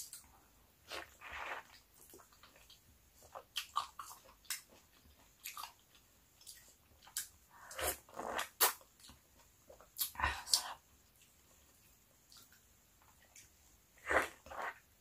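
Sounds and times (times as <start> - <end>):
person chewing an orange: 0.9 - 11.4.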